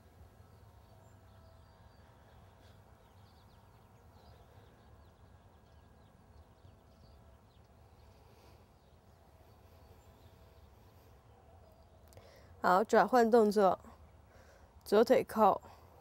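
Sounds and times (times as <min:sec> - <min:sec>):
faint bird chirps: 0:00.0 - 0:12.7
low steady hum: 0:00.0 - 0:16.0.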